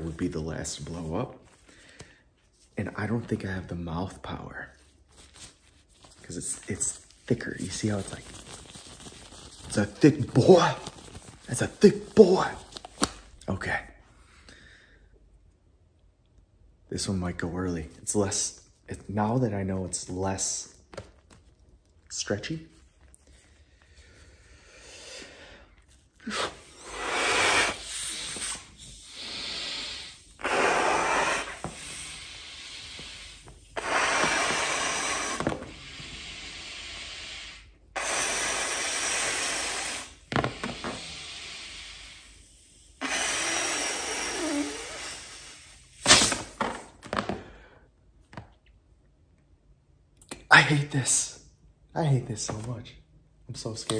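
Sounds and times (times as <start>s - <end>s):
breaths blown into rubber glove: 23.9s - 47.7s.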